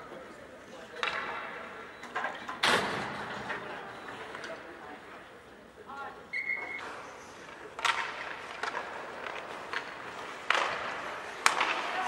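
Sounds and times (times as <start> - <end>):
hockey sticks and puck cracking: 0.9 - 3.6, 6.7 - 12.0.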